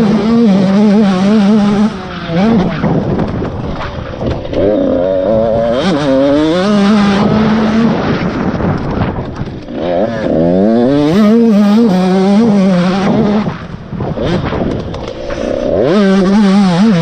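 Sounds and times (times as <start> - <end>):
dirt bike engine accelerating: 0.0 - 17.0.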